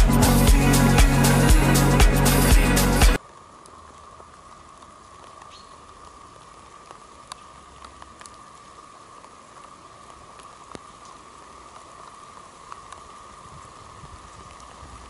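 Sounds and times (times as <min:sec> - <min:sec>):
faint steady hiss: 0:00.0 - 0:15.0
raindrops ticking on leaves: 0:03.2 - 0:15.0.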